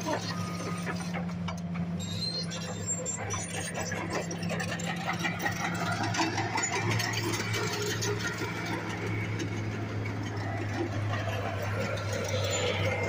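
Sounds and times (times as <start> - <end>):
engine running with low hum: 0.0 - 13.0
outdoor noise: 0.0 - 13.0
irregular clatter: 3.2 - 13.0.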